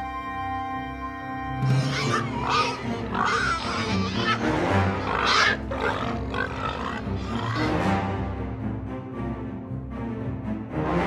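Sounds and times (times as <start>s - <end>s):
background music: 0.0s - 11.0s
piglets crying out: 1.6s - 7.8s.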